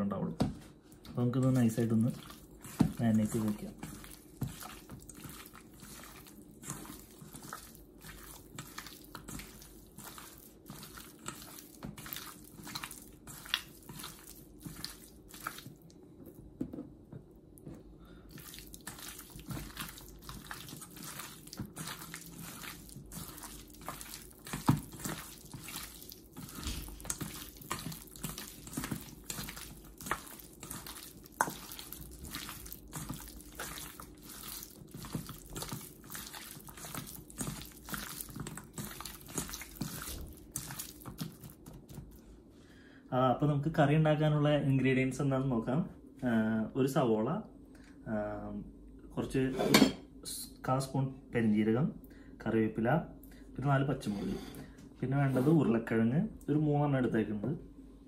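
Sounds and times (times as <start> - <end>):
hands squelching raw chicken: 0.9 - 16.4, 17.6 - 42.2.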